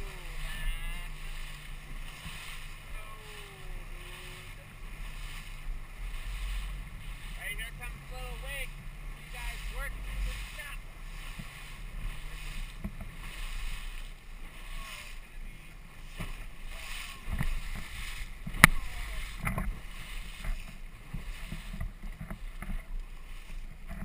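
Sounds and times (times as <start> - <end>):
outboard motor: 0.0 - 24.0
water rushing and splashing: 0.0 - 24.0.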